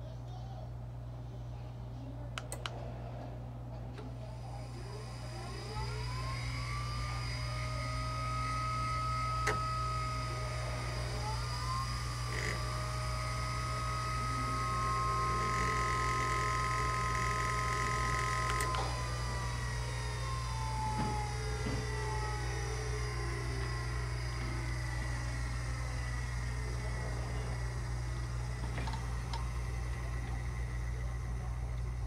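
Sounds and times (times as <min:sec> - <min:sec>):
sharp clicks: 0:02.4 - 0:02.8
ball machine motors whining: 0:02.4 - 0:32.0.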